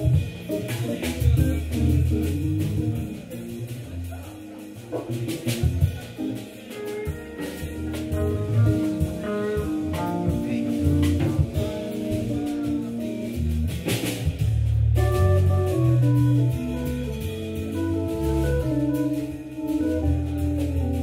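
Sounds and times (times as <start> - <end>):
drum kit: 0.0 - 21.0
electric guitar: 0.0 - 21.0
organ: 15.0 - 21.0.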